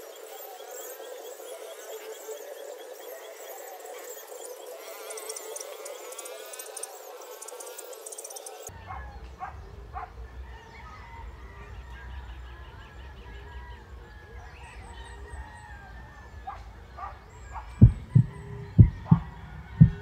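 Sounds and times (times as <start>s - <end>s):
birds chirping: 0.0s - 11.2s, 12.1s - 20.0s
steady low rumble: 17.8s - 20.0s.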